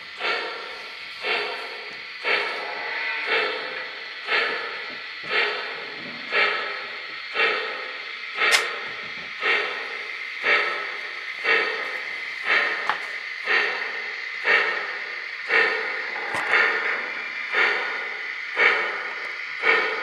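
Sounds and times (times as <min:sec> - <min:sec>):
steady steam hiss: 0:00.0 - 0:20.0
steam locomotive chuffing: 0:00.0 - 0:20.0
sharp click: 0:08.4 - 0:08.8.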